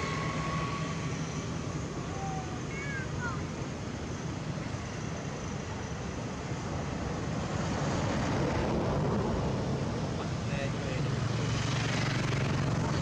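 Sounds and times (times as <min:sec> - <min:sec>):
low rumbling outdoor background noise: 0:00.0 - 0:13.0.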